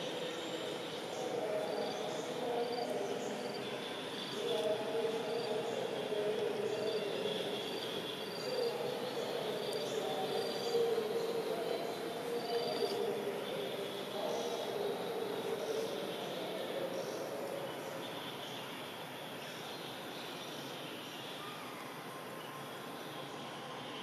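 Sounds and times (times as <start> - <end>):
insects chirping: 0.1 - 18.6.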